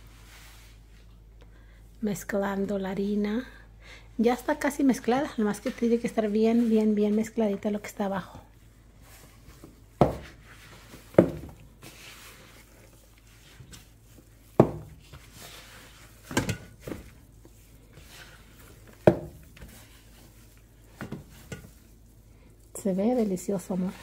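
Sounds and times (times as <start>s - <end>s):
hands kneading dough: 4.2s - 24.0s
dough thumping against bowl: 10.0s - 10.4s, 11.1s - 11.6s, 14.4s - 15.4s, 16.2s - 17.2s, 18.8s - 20.0s, 20.9s - 21.8s.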